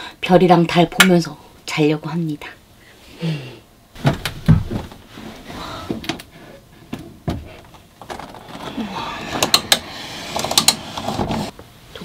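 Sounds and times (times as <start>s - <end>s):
knocks and thumps: 4.0s - 5.1s, 6.9s - 8.4s.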